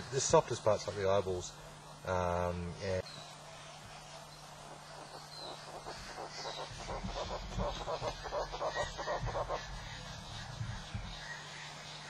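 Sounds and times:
bird calling rapid short notes: 4.7s - 12.0s.

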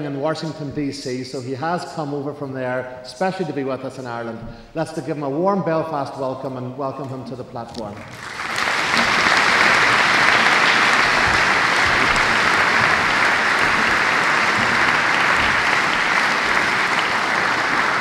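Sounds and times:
audience applauding: 7.9s - 18.0s.

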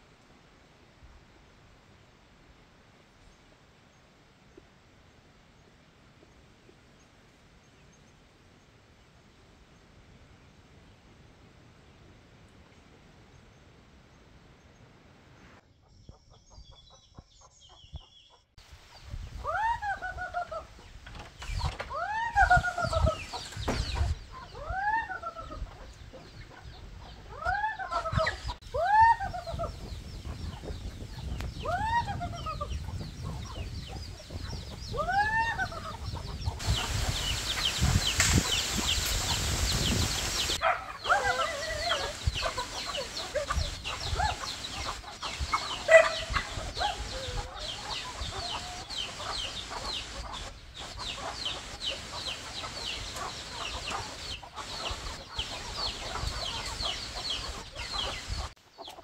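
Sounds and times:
chickens clucking: 16.3s - 59.0s
chickens squawking: 19.3s - 59.0s
steady hiss: 36.6s - 40.6s, 41.4s - 58.6s.

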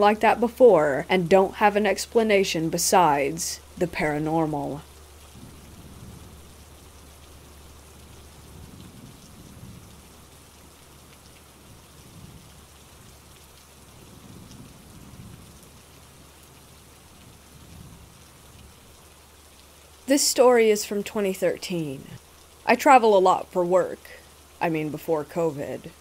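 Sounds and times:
steady rain falling: 0.0s - 26.0s
soft low rumbles: 3.6s - 10.2s.

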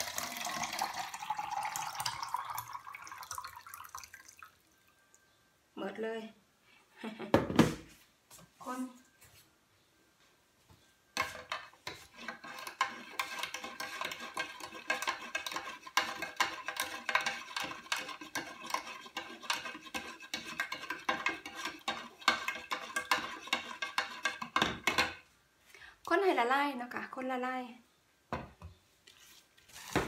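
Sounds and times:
stirring in a plastic jug: 11.2s - 25.2s.

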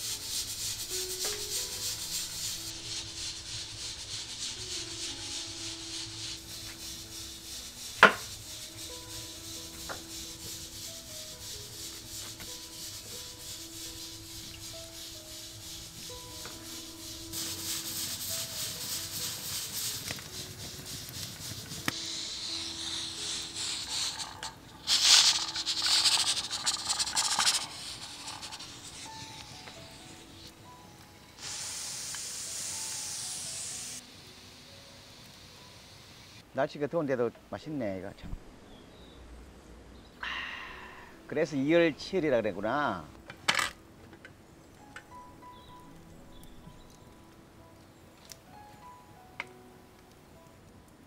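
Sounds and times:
pressure cooker hissing: 0.0s - 30.5s, 31.3s - 34.0s.

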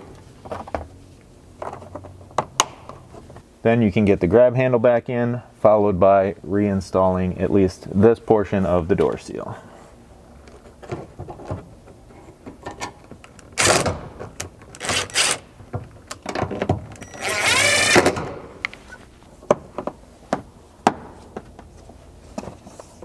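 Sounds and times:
cordless driver whining: 17.1s - 18.1s.

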